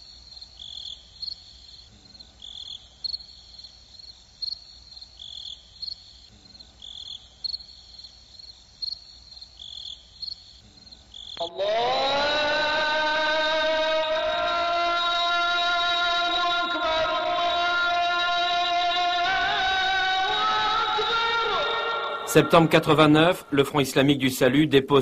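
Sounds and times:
crickets chirping: 0.0 - 23.4.

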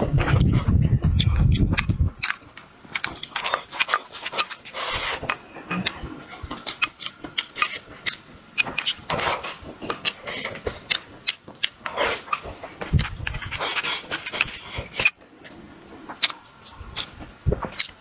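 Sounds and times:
chewing and mouth clicks: 1.1 - 18.0.

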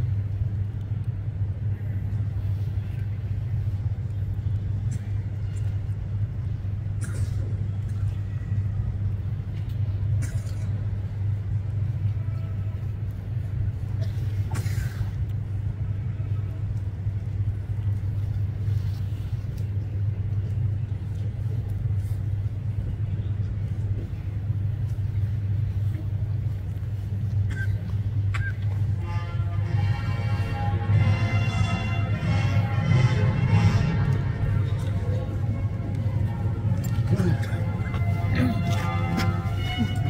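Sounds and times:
low outdoor rumble: 0.0 - 40.0.

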